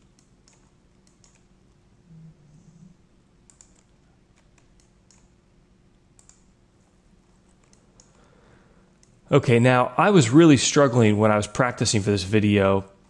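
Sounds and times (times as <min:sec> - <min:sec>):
computer mouse clicks: 0:00.0 - 0:01.8, 0:03.4 - 0:05.4, 0:06.1 - 0:06.6, 0:07.5 - 0:08.3, 0:09.0 - 0:09.2.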